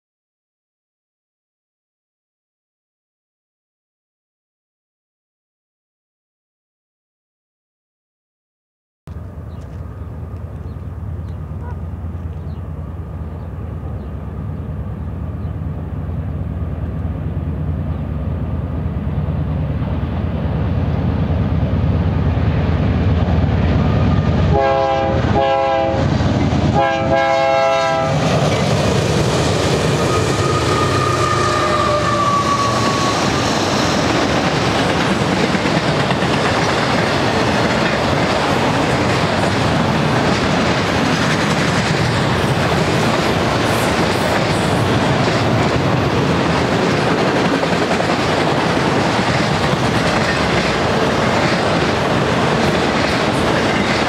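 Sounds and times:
diesel locomotive rumble: 9.1 - 54.0
train horn blasts: 24.4 - 26.1, 26.7 - 28.3, 30.0 - 33.5
train wheels clattering on rails: 27.8 - 54.0.

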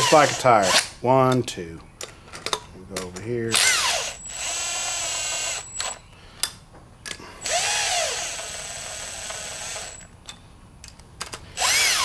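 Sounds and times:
impact wrench whining: 0.0 - 0.9, 3.5 - 6.0, 7.4 - 10.1, 11.6 - 12.0.

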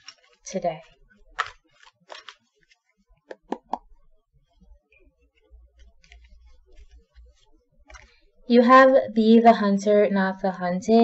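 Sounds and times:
cards clicking and snapping: 1.3 - 3.8.

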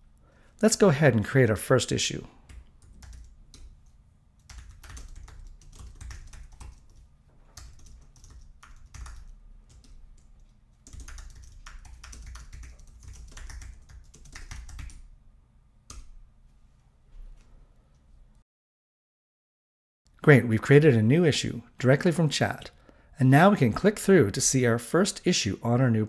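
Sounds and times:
computer keyboard typing: 2.5 - 15.1.

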